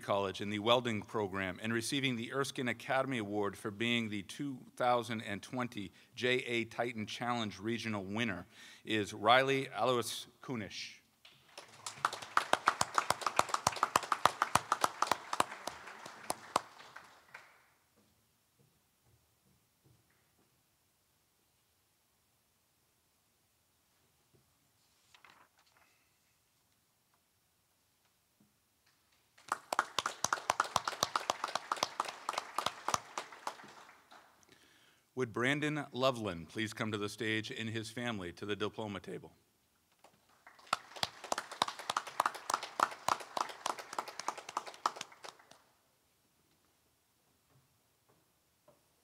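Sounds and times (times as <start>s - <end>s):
people clapping: 11.2s - 17.8s, 29.4s - 34.4s, 40.0s - 45.7s
small group applauding: 11.3s - 17.8s, 29.4s - 34.4s, 40.0s - 45.8s.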